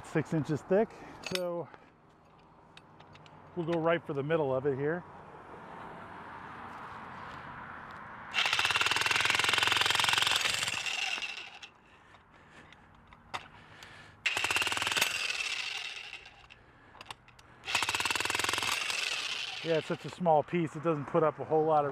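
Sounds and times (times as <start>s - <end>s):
jackhammer hammering concrete: 8.4s - 11.7s, 14.2s - 16.6s, 17.6s - 20.0s.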